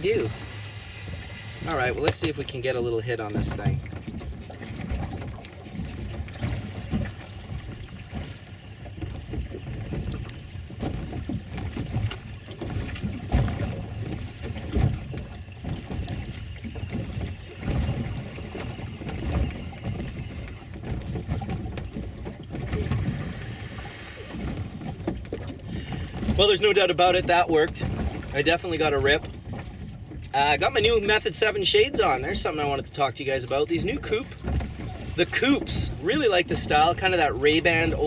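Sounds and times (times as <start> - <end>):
wind buffeting microphone: 0.0 - 32.9, 33.6 - 38.0
water lapping against hull: 0.0 - 38.0.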